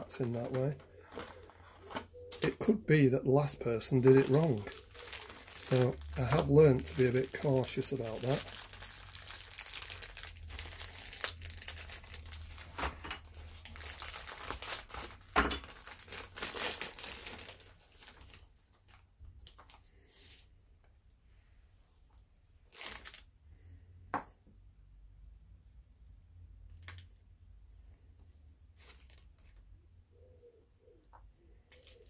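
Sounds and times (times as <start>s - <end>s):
plastic bag crinkling: 0.0s - 20.4s, 22.6s - 23.3s, 28.8s - 29.6s, 31.7s - 32.0s.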